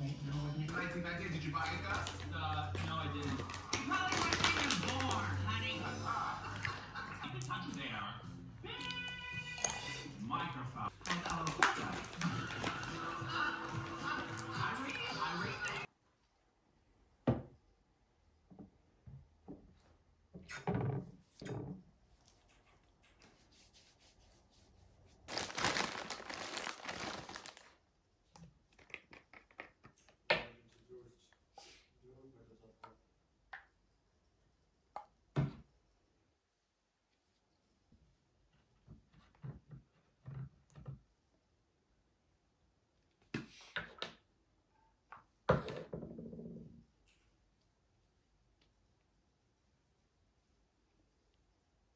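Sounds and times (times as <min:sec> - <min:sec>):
plastic bag crinkling: 0:01.6 - 0:05.7, 0:10.9 - 0:14.6, 0:25.3 - 0:27.8
plastic bottles knocking on countertop: 0:45.5 - 0:46.4.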